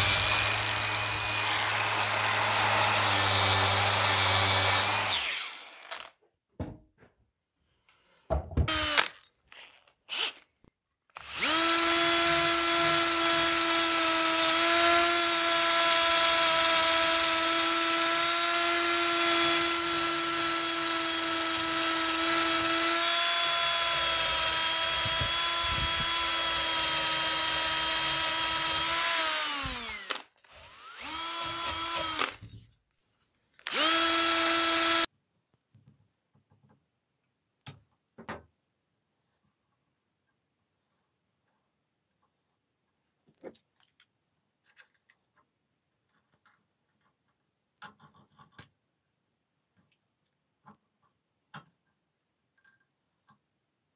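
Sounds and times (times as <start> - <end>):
drill spinning wire brush on steel: 0.0 - 6.2, 11.1 - 32.5, 33.6 - 35.1.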